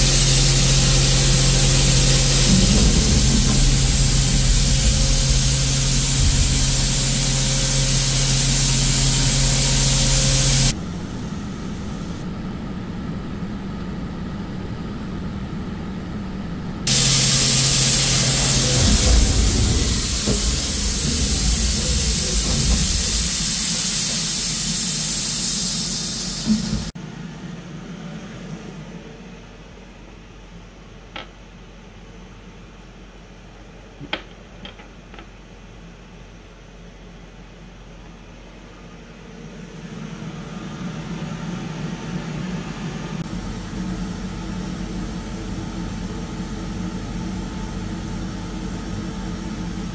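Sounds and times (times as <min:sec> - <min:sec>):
coolant mist spray hissing: 0:00.0 - 0:12.2, 0:16.9 - 0:27.0
milling spindle humming: 0:00.0 - 0:14.7, 0:16.9 - 0:26.9.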